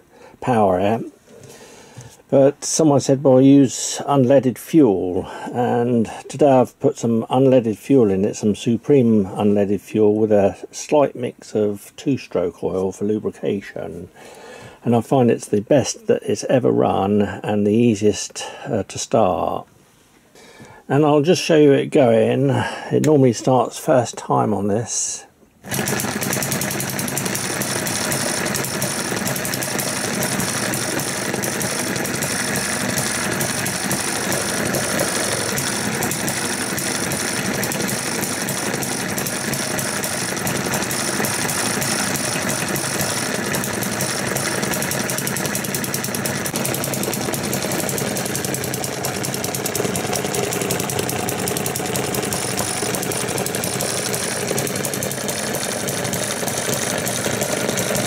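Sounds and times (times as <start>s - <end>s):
small gas engine knocking: 25.6s - 58.0s.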